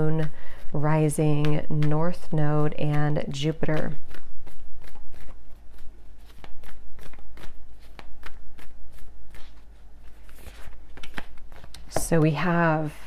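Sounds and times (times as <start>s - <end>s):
cards being shuffled: 3.4s - 12.4s.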